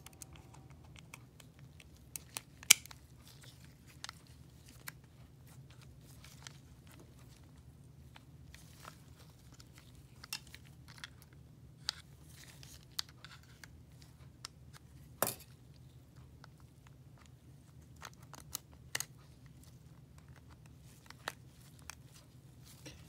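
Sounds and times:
pipette parts clicking: 0:00.0 - 0:05.0
faint low hum: 0:00.0 - 0:23.0.

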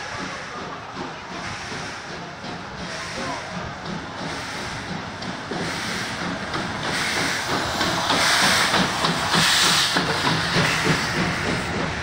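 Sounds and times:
steam locomotive hissing: 0:00.0 - 0:12.0
train rumbling on rails: 0:00.0 - 0:12.0.

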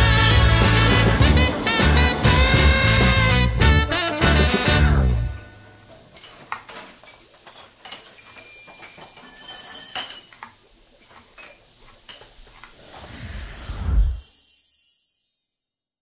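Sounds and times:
glass clinks and taps: 0:06.1 - 0:10.6
rising whoosh: 0:12.8 - 0:15.4.

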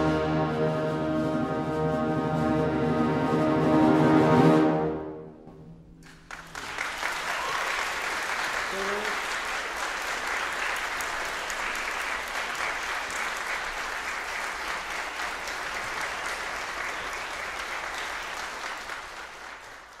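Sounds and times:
audience applauding: 0:06.0 - 0:20.0.

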